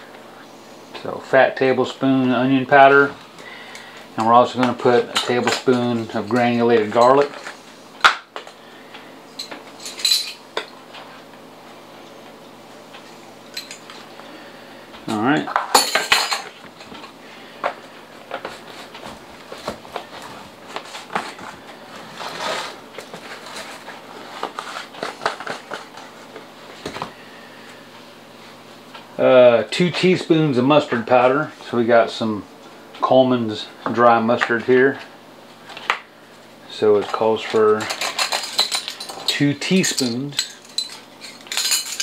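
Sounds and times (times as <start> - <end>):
metal spoons clinking and scraping: 37.8 - 42.0.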